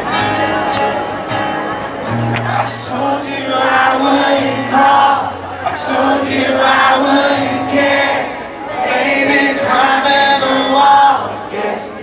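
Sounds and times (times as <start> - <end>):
crowd voices: 0.0 - 12.0
man singing: 2.5 - 8.5, 9.1 - 12.0.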